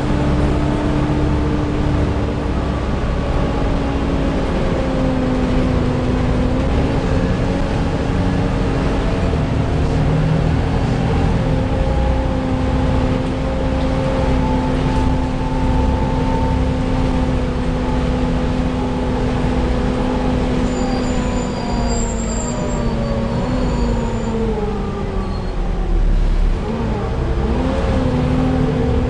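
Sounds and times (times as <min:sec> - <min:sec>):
bus cooling fan whining: 0:00.0 - 0:29.0
engine and road rumble: 0:00.0 - 0:29.0
faint high whistles: 0:20.6 - 0:24.4.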